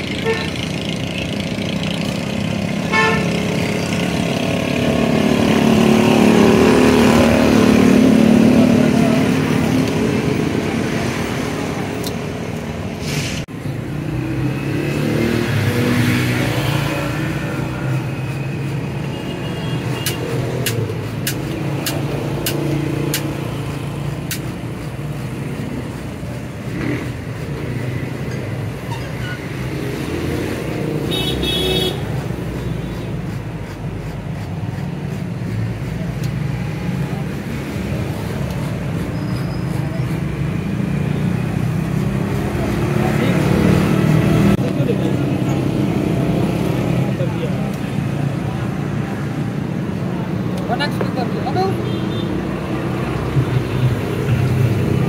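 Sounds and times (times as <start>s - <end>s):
road traffic passing: 0.0s - 55.0s
car horn toot: 2.9s - 3.3s
sharp clicks: 20.0s - 23.4s.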